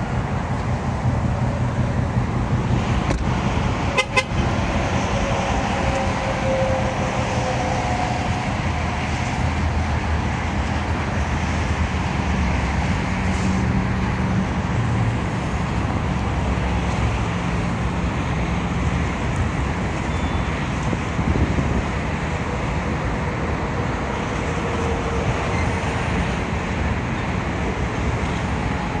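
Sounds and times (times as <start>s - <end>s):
low engine hum: 0.0s - 29.0s
road traffic passing: 0.0s - 29.0s.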